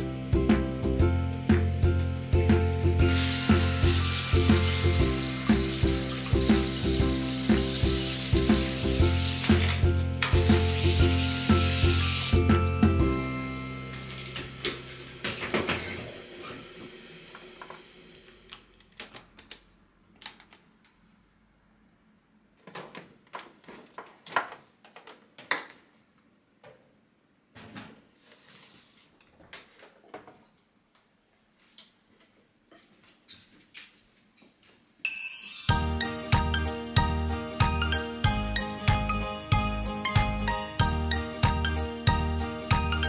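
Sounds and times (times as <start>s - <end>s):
hiss: 3.1s - 9.6s, 10.5s - 12.4s.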